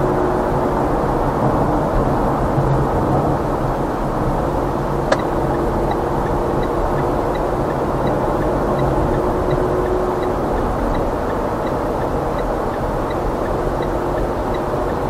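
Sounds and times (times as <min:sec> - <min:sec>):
car road and engine noise: 0:00.0 - 0:15.0
turn signal ticking: 0:04.8 - 0:15.0
single click: 0:05.1 - 0:05.3.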